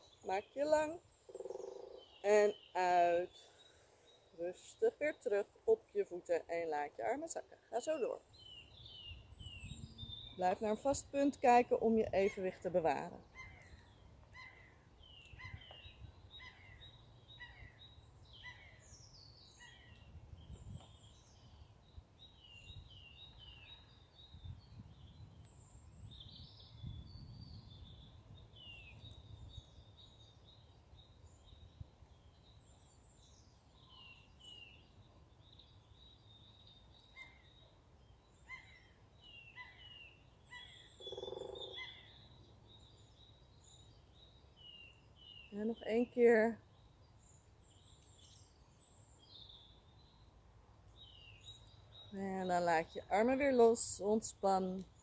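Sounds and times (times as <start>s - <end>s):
small birds chirping and whistling: 8.4s - 10.4s
lower-pitched bird call: 38.4s - 42.3s.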